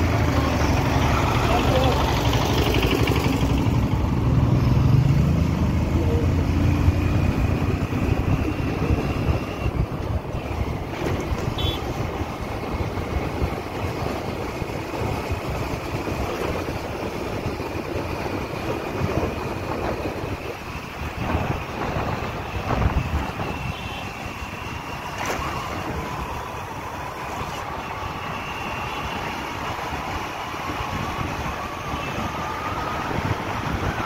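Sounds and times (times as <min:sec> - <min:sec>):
road noise: 0:00.0 - 0:34.0
vehicle engine: 0:00.0 - 0:34.0
wind buffeting microphone: 0:06.9 - 0:34.0.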